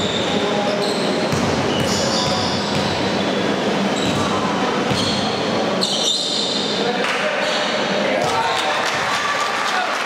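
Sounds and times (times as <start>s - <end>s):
shoes squeaking on court floor: 0.0s - 6.8s
crowd and hall din: 0.0s - 10.0s.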